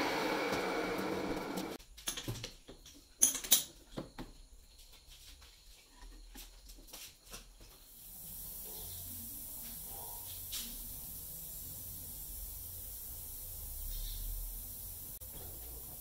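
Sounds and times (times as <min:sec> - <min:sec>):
steady hiss: 0:06.9 - 0:16.0.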